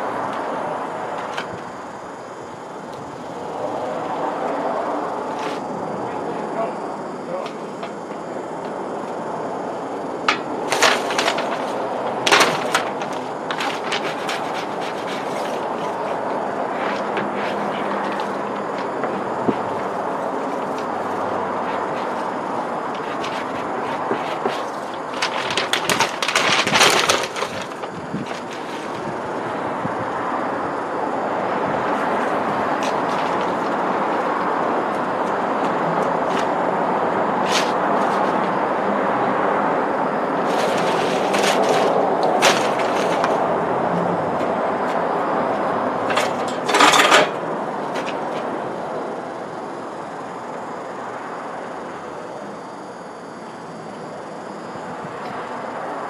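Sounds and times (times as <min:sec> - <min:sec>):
outdoor background noise: 0:00.0 - 0:56.0
passing road traffic rumbling: 0:00.0 - 0:56.0
transfer tape crackling and rustling: 0:10.3 - 0:29.3, 0:40.4 - 0:43.4.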